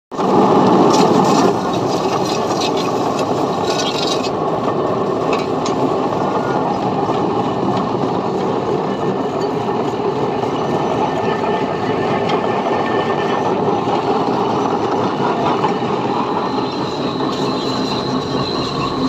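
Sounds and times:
pipe mould rumbling and rattling: 0:00.2 - 0:19.0
scraping clatter: 0:00.3 - 0:04.4.

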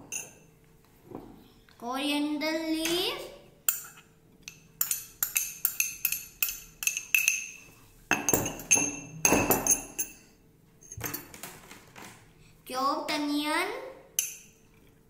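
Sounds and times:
spoon clinking against glass bowl: 0:00.0 - 0:00.4, 0:03.7 - 0:10.3, 0:14.2 - 0:14.6.

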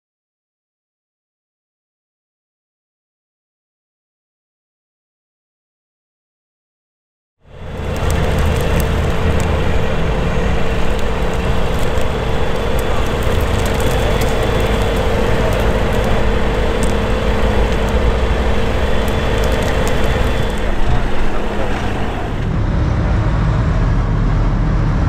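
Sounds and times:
diesel engine rumbling under load: 0:07.5 - 0:24.8.

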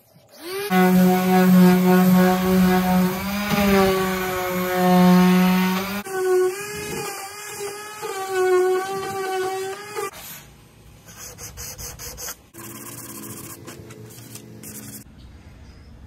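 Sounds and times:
orbital sander on wood: 0:00.4 - 0:06.0.

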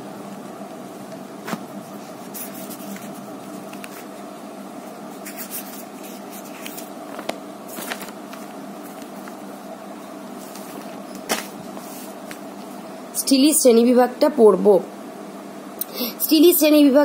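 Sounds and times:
steady hum: 0:00.0 - 0:17.0
paper rustling: 0:01.4 - 0:04.2, 0:05.1 - 0:09.4, 0:10.4 - 0:12.5.

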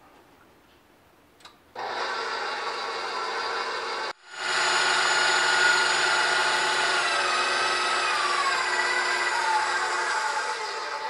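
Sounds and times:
stand mixer whisking: 0:01.8 - 0:11.0.

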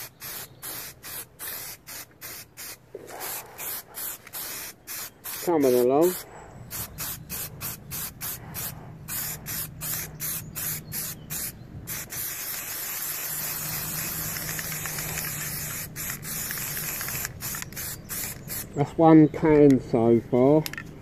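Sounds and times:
aerosol spray paint hissing: 0:00.0 - 0:18.8.

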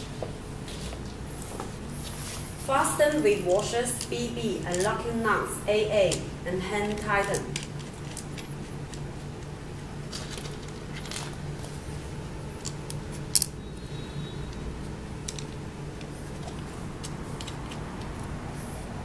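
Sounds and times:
metal washers and nuts clinking: 0:10.1 - 0:11.8, 0:12.4 - 0:14.0.

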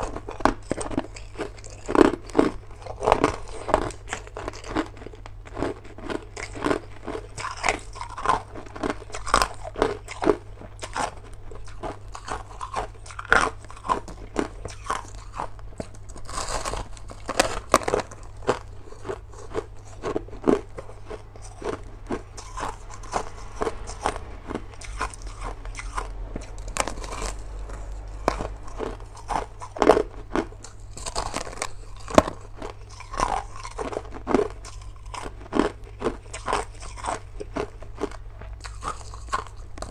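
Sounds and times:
person crunching ice: 0:00.0 - 0:39.9.

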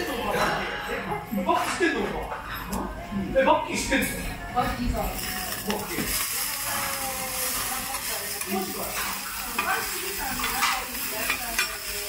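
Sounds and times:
batter sizzling on a griddle: 0:05.0 - 0:12.0
metal spatulas scraping and tapping: 0:07.9 - 0:12.0.

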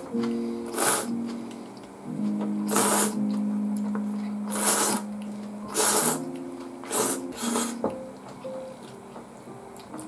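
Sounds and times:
person slurping noodles: 0:00.7 - 0:01.1, 0:02.7 - 0:03.2, 0:04.5 - 0:05.1, 0:05.7 - 0:06.2, 0:06.9 - 0:07.8.

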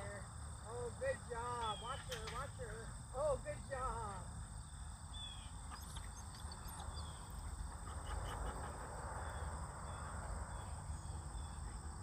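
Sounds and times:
high insect trill: 0:00.0 - 0:12.0
faint bird chirps: 0:04.7 - 0:08.5.

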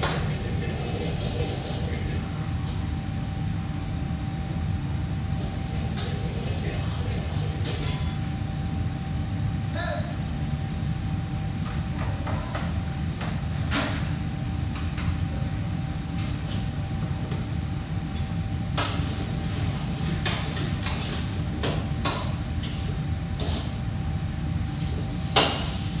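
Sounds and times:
low hum of fans: 0:00.0 - 0:26.0
pots and utensils clinking: 0:07.5 - 0:08.3.

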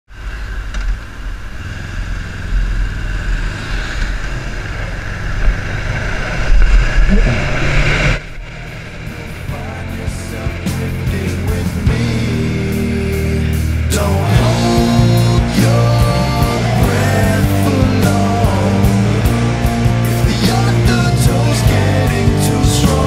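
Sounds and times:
motorcycle engine: 0:00.1 - 0:23.0
rock music: 0:07.4 - 0:23.0.

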